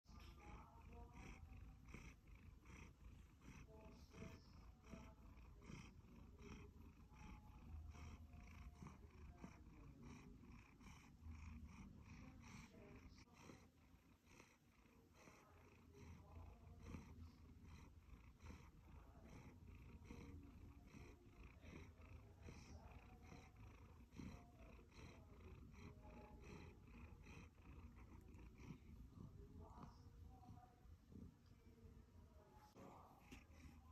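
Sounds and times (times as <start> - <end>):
cat purring: 0.0 - 33.9.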